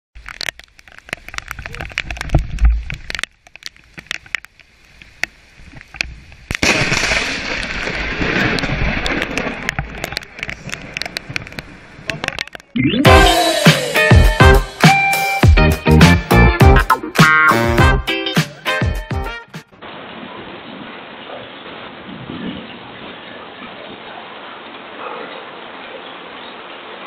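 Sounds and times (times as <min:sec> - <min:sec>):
clicks and crackles: 0:00.2 - 0:12.8
lightning strike crash: 0:06.6 - 0:09.6.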